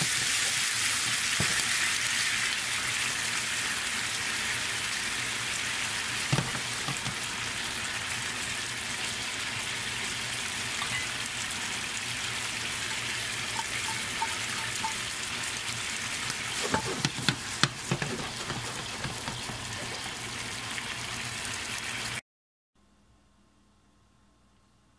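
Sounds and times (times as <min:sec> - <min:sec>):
shrimp sizzling in a frying pan: 0:00.0 - 0:22.2
utensils clattering in a pan: 0:06.3 - 0:07.2, 0:10.8 - 0:11.2, 0:12.9 - 0:15.1, 0:16.4 - 0:20.1.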